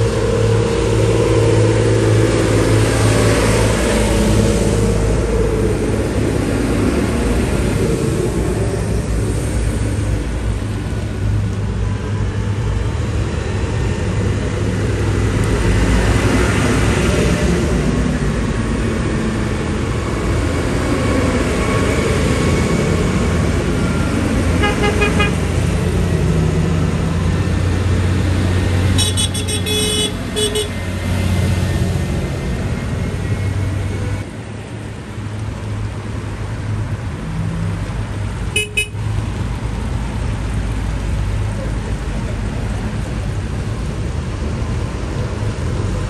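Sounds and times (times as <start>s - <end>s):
tractor engines droning: 0.0s - 46.0s
horn beeping: 24.6s - 25.4s, 29.0s - 30.8s, 38.6s - 39.0s.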